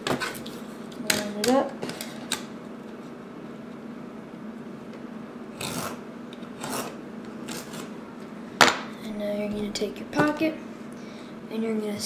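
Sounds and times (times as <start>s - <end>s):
craft knife slicing tape: 5.6s - 6.0s, 6.6s - 7.9s.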